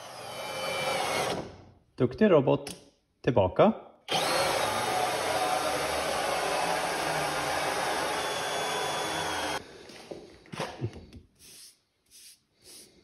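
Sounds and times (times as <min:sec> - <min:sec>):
router motor running: 0:04.1 - 0:09.6.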